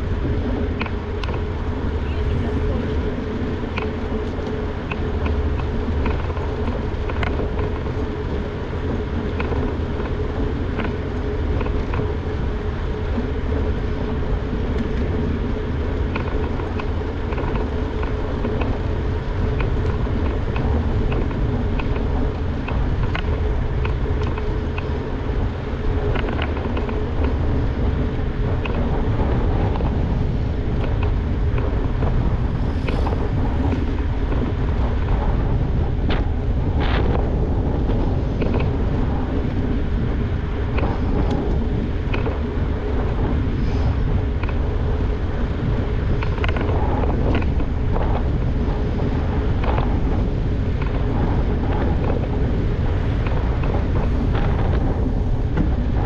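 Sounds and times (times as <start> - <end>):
bike tyres rolling on pavement: 0.0 - 56.0
steady hum: 0.0 - 56.0
wind rumble on camera: 0.0 - 56.0
bike clicks and rattles: 0.4 - 1.7, 3.2 - 56.0.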